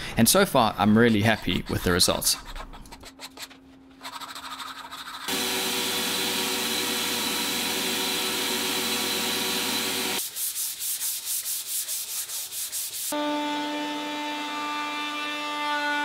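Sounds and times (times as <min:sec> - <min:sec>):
hand sanding strokes: 0:01.0 - 0:05.5, 0:07.8 - 0:13.2
power sander on wood: 0:05.3 - 0:10.2.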